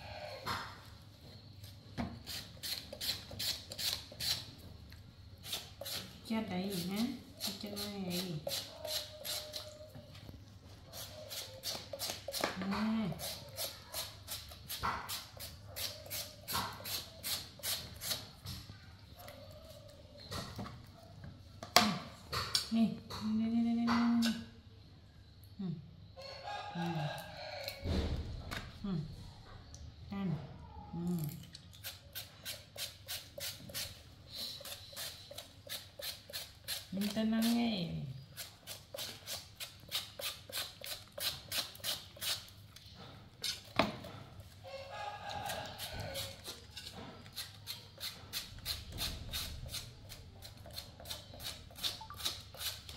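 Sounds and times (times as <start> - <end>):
peeler scraping potato skin: 2.2 - 4.6, 5.4 - 9.8, 10.9 - 18.6, 31.8 - 43.8, 44.8 - 52.9.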